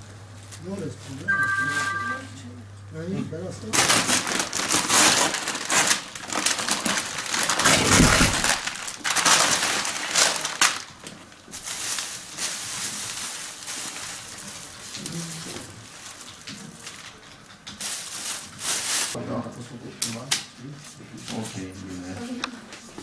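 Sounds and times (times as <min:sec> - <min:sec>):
plastic bags and paper crinkling: 0:03.7 - 0:19.2.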